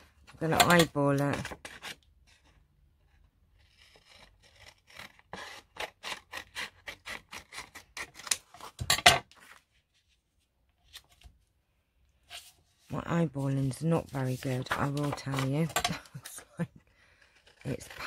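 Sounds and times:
paper scraping strokes: 12.2s - 15.6s.

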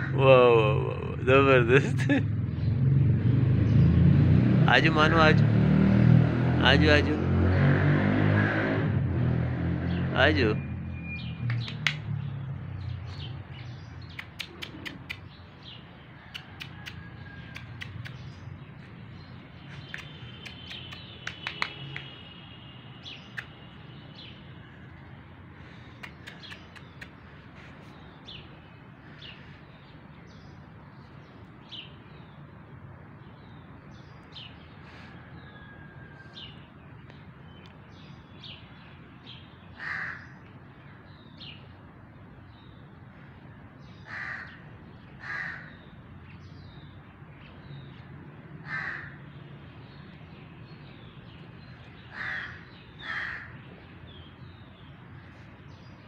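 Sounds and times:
small birds chirping: 9.8s - 35.6s, 36.4s - 56.0s
sharp clicks: 11.4s - 12.1s, 14.0s - 15.3s, 16.4s - 18.3s, 19.8s - 22.2s, 25.9s - 27.2s
crow cawing: 39.8s - 40.4s, 44.0s - 44.6s, 45.2s - 45.8s, 48.6s - 49.2s, 52.1s - 53.6s.

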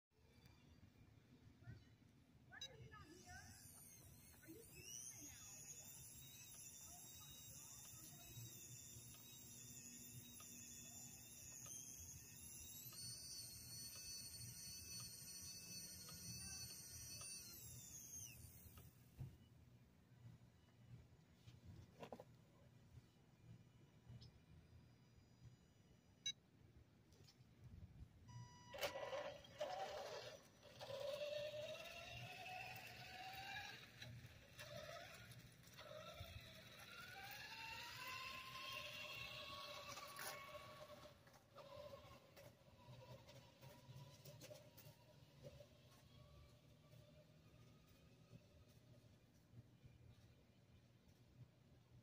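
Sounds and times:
high-pitched whining tones: 2.6s - 19.0s, 28.3s - 48.8s.

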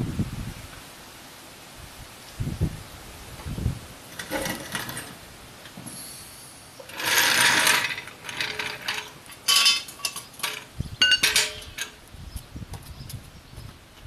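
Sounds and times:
metal clinks and clanks: 4.1s - 5.2s, 6.8s - 12.0s
rattling noise: 4.1s - 5.2s, 6.8s - 12.0s.

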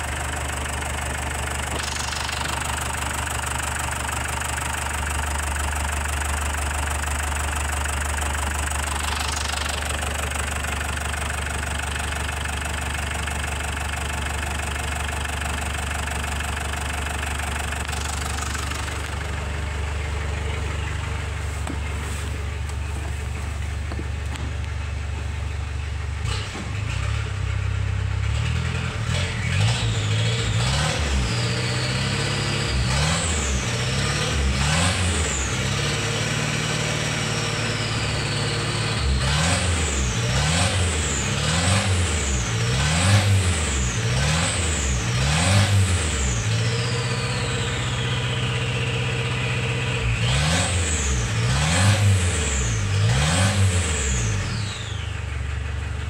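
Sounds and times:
diesel engine revving: 0.0s - 56.0s.

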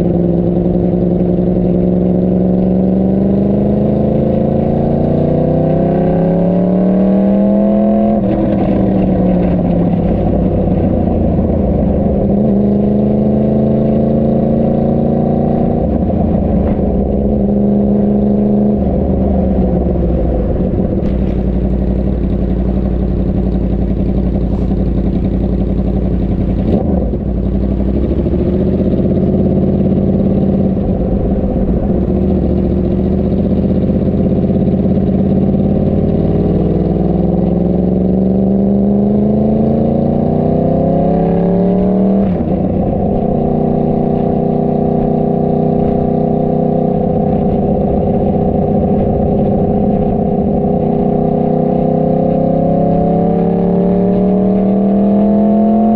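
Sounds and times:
motorcycle engine accelerating: 0.0s - 55.9s.

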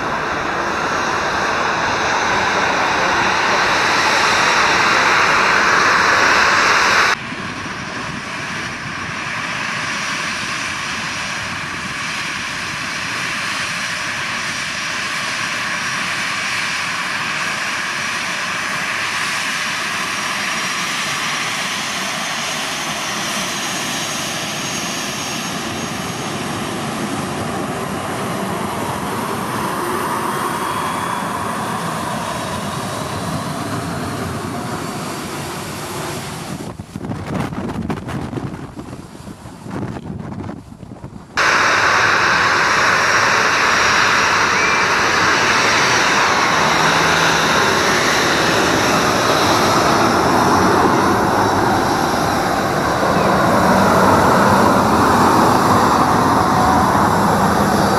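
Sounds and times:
loud rushing noise: 0.0s - 7.2s, 41.4s - 57.9s
jet engines taxiing hum and whine: 0.0s - 57.9s.

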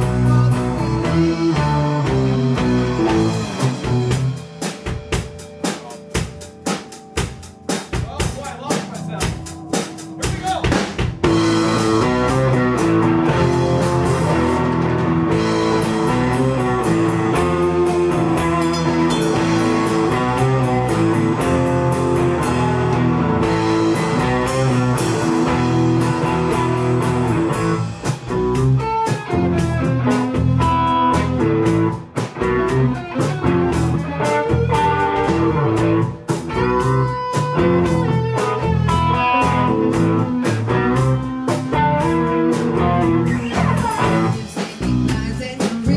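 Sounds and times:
live blues-rock band: 0.0s - 45.9s.

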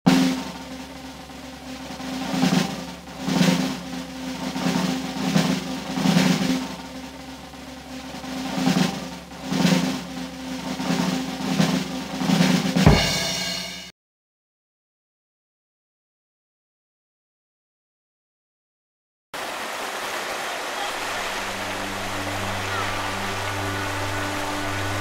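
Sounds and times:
rolling drums: 0.1s - 13.9s, 20.8s - 25.0s
loud hit and ringing chord: 9.5s - 13.9s.

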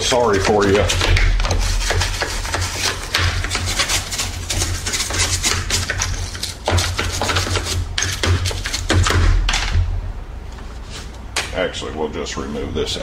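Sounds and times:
brush scrubbing plastic: 0.0s - 9.0s.

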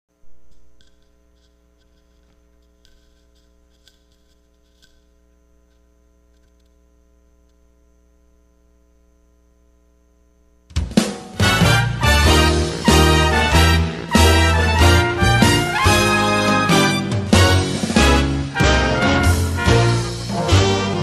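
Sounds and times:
faint mains hum: 0.1s - 21.0s
karaoke backing track: 10.8s - 21.0s.

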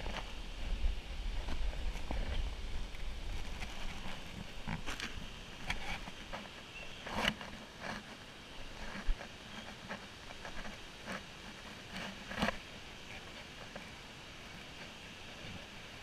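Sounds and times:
hands and feet on wet rock: 1.5s - 14.0s.

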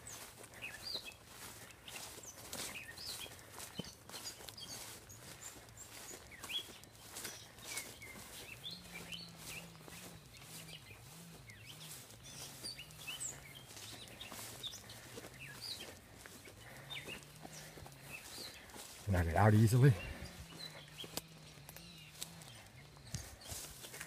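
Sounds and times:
grass brushing against legs: 0.0s - 24.0s
small birds chirping: 0.0s - 24.0s
faint low wavering drone: 20.2s - 23.9s.

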